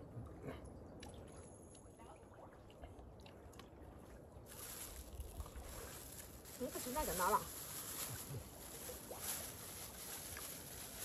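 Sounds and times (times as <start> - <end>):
plastic bag rustling: 4.5 - 11.0.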